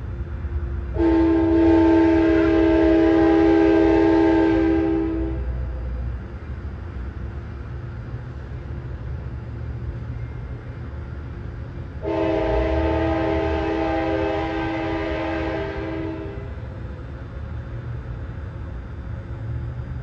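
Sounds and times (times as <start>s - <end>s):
train rumbling: 0.0s - 20.0s
train horn blast: 0.9s - 5.6s, 12.0s - 16.7s.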